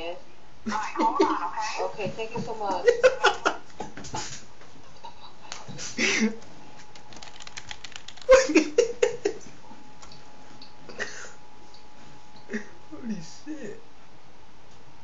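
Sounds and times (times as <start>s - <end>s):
stifled laughter and giggling: 2.8s - 3.6s, 8.3s - 9.5s
keyboard typing clicks: 6.9s - 8.3s.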